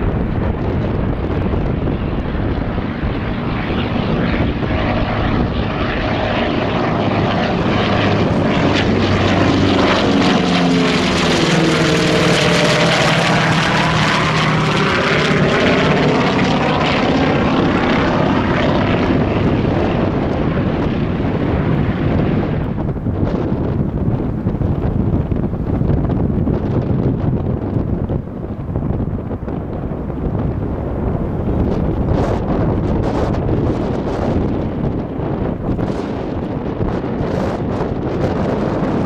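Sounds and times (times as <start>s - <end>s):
propeller plane flying overhead: 0.0s - 39.0s.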